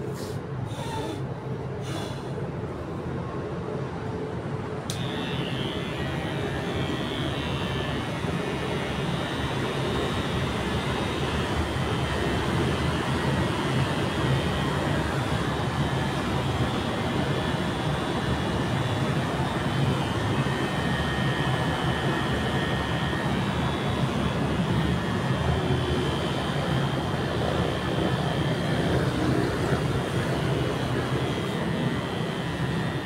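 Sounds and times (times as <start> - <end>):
electric hair clipper buzzing: 4.9 - 26.4.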